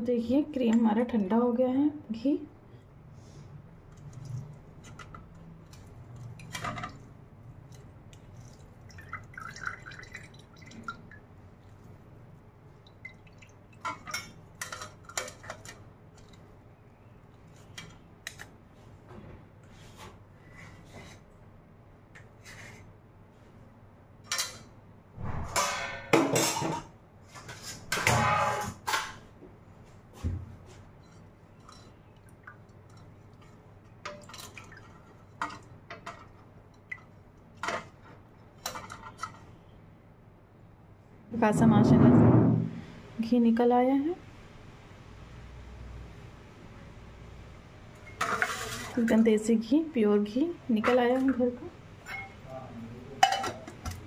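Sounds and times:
spoon scraping metal strainer: 48.2 - 49.1.

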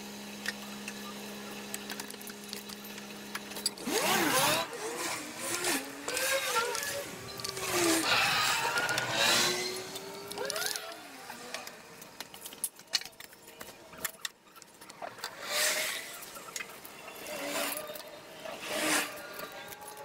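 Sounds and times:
short high gliding squeaks: 4.2 - 10.9.

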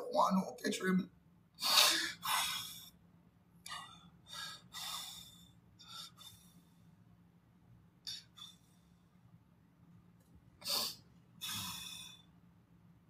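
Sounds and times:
faint low hum: 0.0 - 13.0
man breathing hard: 1.6 - 3.0, 3.7 - 7.0, 10.6 - 12.4.

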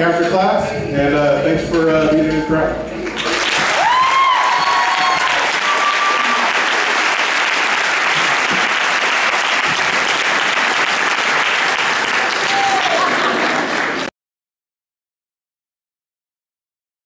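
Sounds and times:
audience applauding: 3.0 - 14.1
high cheer: 3.2 - 14.1.

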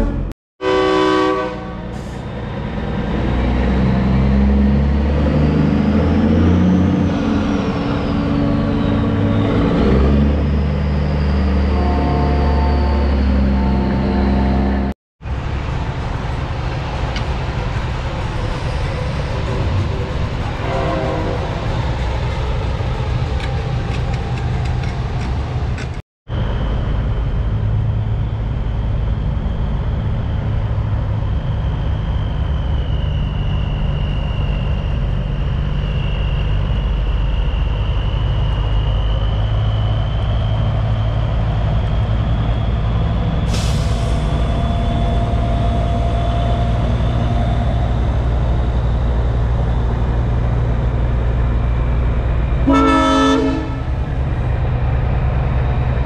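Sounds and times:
truck horn chord: 0.0 - 1.9, 52.6 - 53.9
truck diesel engines rumbling: 0.0 - 56.0.

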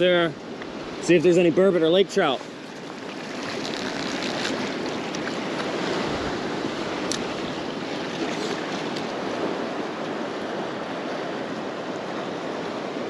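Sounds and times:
waves washing against rocks: 1.0 - 11.4.

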